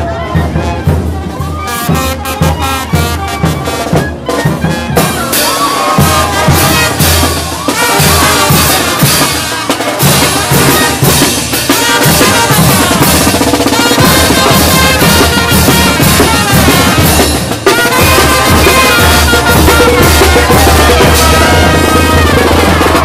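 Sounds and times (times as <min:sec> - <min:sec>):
brass band playing: 0:00.0 - 0:23.0
trumpets: 0:00.0 - 0:23.0
snare drum beating: 0:01.4 - 0:23.0
bass drum beating: 0:14.0 - 0:23.0.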